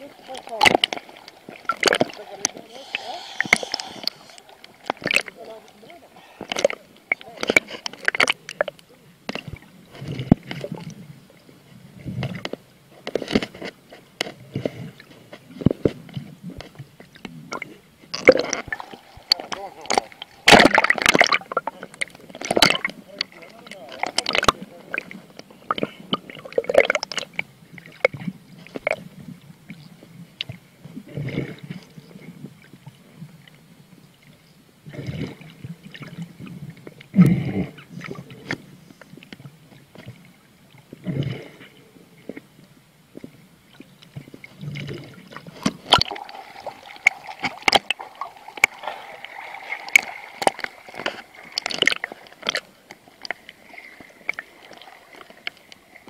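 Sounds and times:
underwater bubbles gurgling: 0.0s - 12.6s, 14.5s - 56.0s
crackle of bubbles: 0.0s - 33.7s, 34.8s - 56.0s
steady hum: 2.6s - 6.5s.

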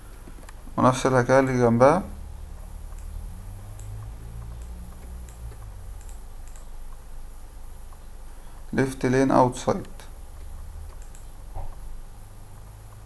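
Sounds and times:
low steady hum: 0.0s - 13.0s
computer mouse clicks: 2.6s - 7.0s, 9.8s - 11.9s.

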